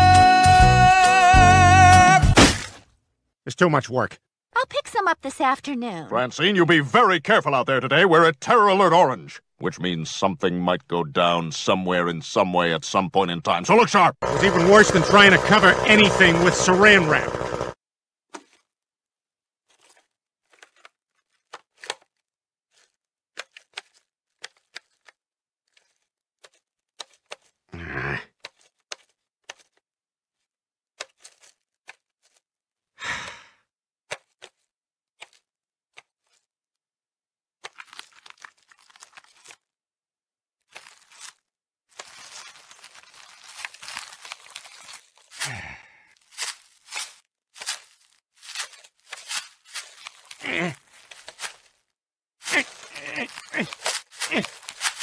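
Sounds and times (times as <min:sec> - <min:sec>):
plastic wrap crinkling and tearing: 0:19.7 - 0:27.5, 0:37.6 - 0:39.7, 0:40.7 - 0:55.0
person sighing: 0:27.8 - 0:28.3, 0:33.0 - 0:33.6, 0:45.4 - 0:46.1, 0:50.4 - 0:50.8, 0:52.4 - 0:54.6.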